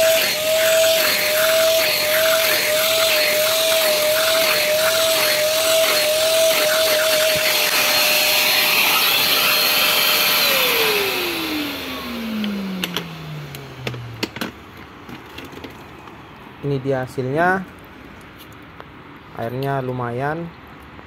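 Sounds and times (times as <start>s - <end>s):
motor winding down: 0.0s - 14.3s
vacuum cleaner high whine: 0.0s - 14.5s.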